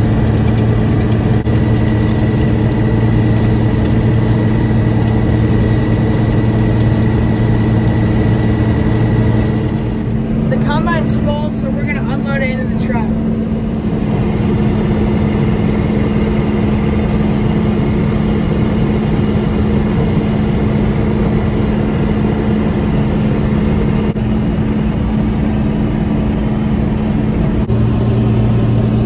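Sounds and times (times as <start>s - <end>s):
combine harvester running: 0.0s - 29.0s
deeper hum: 0.0s - 29.0s.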